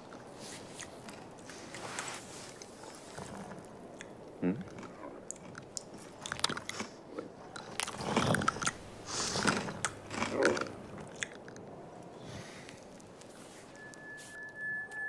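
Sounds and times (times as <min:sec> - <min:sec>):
cartoon crunchy chewing: 0:02.5 - 0:11.7.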